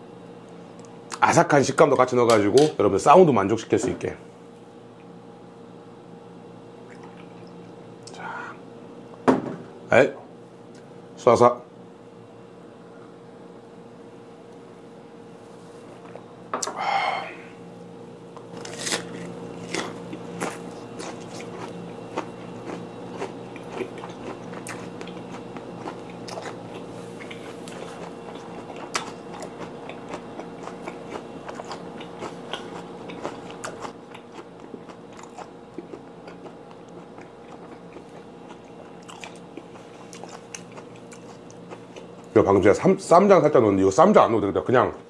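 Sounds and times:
onion crunching: 0:18.5 - 0:42.4
close chewing: 0:18.6 - 0:42.4.

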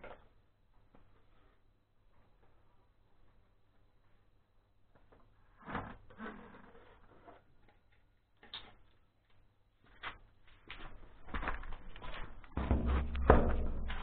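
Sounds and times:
footsteps on garage floor: 0:09.8 - 0:14.0.

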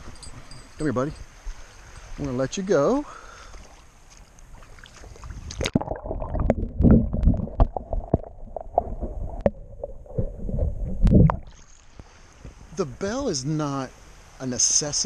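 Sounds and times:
muffled underwater water sloshing: 0:03.3 - 0:12.6.

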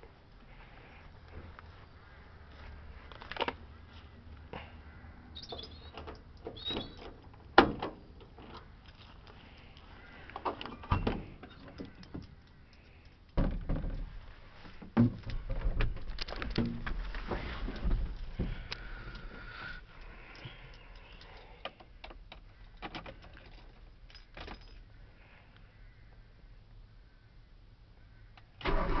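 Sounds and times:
rustling of person climbing in: 0:13.4 - 0:24.9.

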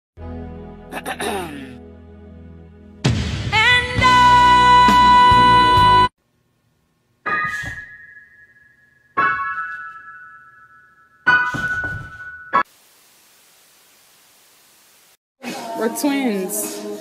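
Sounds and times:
piano chords ringing: 0:07.3 - 0:12.7.

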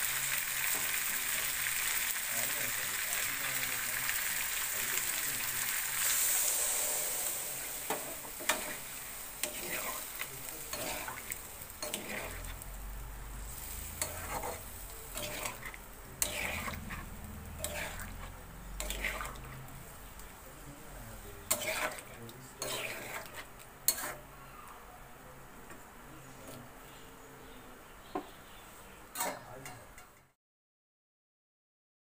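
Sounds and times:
water sizzling in hot oil: 0:00.0 - 0:20.3, 0:21.1 - 0:24.2
metal spatula scraping a pan: 0:06.0 - 0:12.6, 0:13.5 - 0:19.8, 0:21.4 - 0:24.3, 0:29.1 - 0:30.2.

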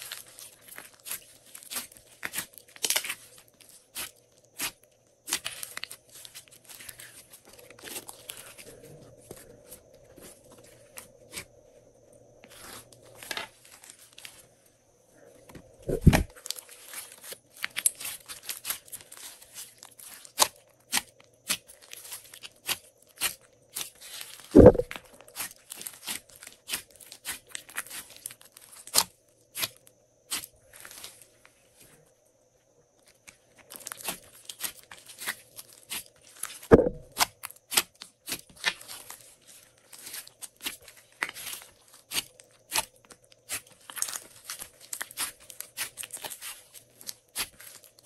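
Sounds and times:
slime popping deeply: 0:15.9 - 0:16.3, 0:24.6 - 0:24.9, 0:36.7 - 0:37.1.

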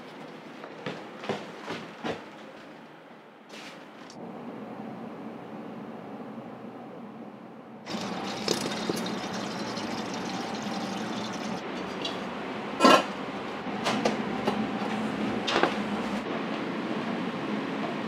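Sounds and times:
liquid pouring into pot: 0:07.9 - 0:12.0.

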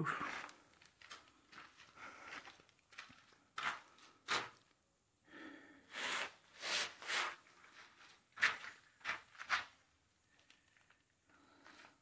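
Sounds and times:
footsteps scuffing on concrete: 0:00.2 - 0:04.6.

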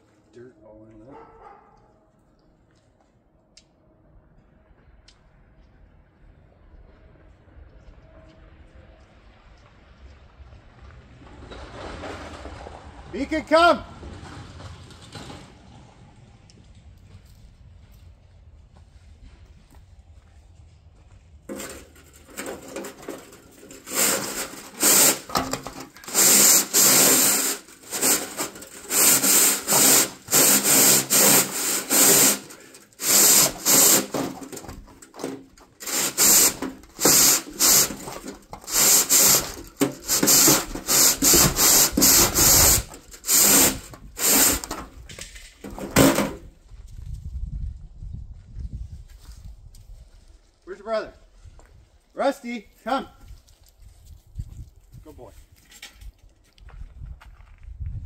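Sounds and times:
brush scraping inside chimney pipe: 0:21.5 - 0:44.9.

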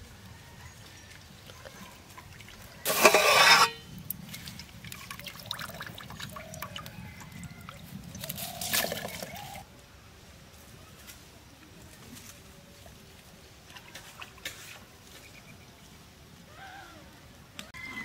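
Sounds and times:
water splashing into metal pot: 0:02.1 - 0:09.6
pot and lid clinking: 0:02.9 - 0:03.8.

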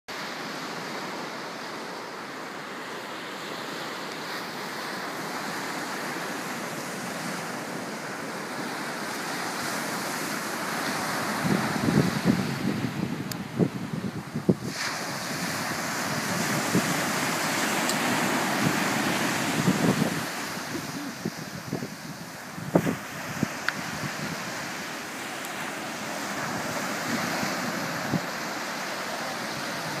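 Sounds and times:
small waves breaking on beach: 0:00.1 - 0:30.0
wind buffeting microphone: 0:11.2 - 0:24.9, 0:26.0 - 0:30.0.

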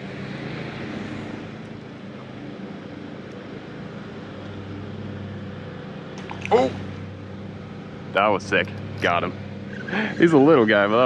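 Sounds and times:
low motor hum: 0:00.0 - 0:11.0
wind and water noise: 0:06.2 - 0:07.1.

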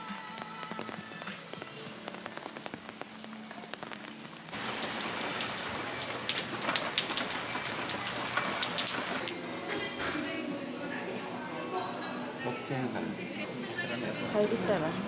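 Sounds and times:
rain on wet walkway: 0:00.0 - 0:09.3.

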